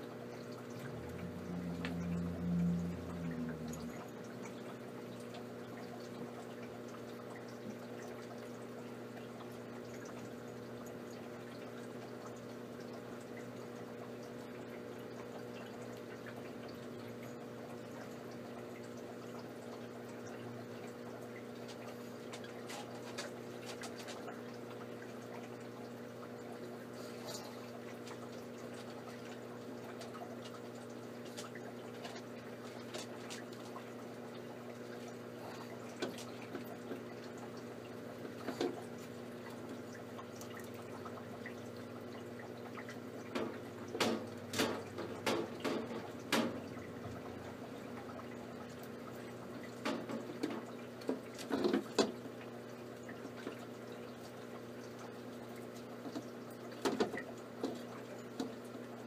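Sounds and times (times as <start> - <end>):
low hum: 0.6 - 5.5.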